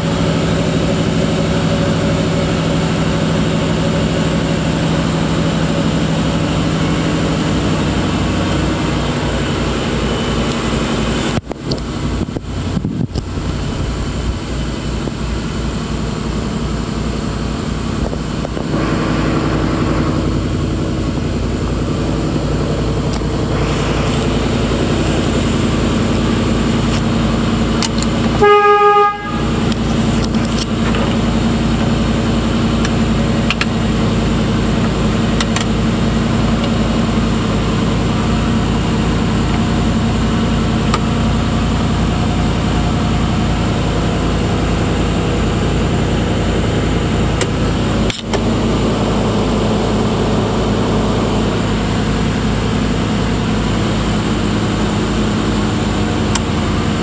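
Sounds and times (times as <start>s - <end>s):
car engine idling: 0.0s - 57.0s
car horn toot: 28.3s - 29.9s.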